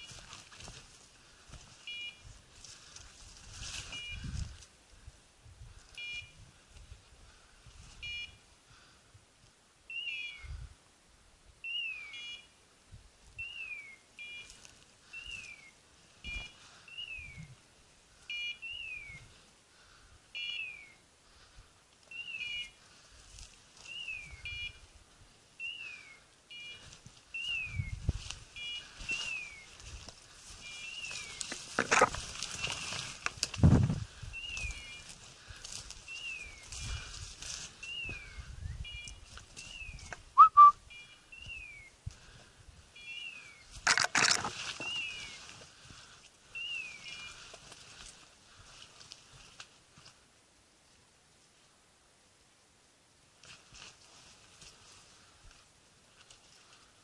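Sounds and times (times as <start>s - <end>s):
footsteps through dry brush: 0.0s - 4.8s, 13.4s - 19.9s, 20.6s - 50.3s, 53.4s - 57.0s
branches rustling: 0.0s - 9.0s, 13.2s - 51.8s, 53.2s - 57.0s
beeper collar beep and chirp: 1.9s - 2.3s, 3.9s - 4.3s, 6.0s - 6.4s, 8.0s - 8.4s, 11.8s - 12.5s, 18.3s - 19.2s, 24.2s - 24.8s, 28.6s - 29.4s.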